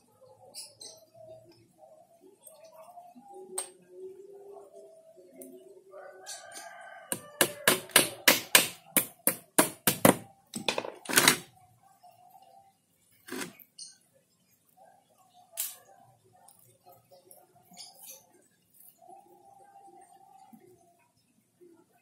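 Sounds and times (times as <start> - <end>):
knocks on wooden frame: 7.1 - 11.0.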